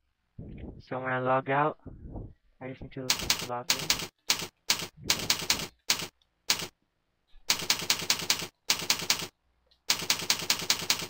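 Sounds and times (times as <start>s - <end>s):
computer keyboard typing: 3.1s - 6.7s, 7.5s - 9.3s, 9.9s - 11.0s.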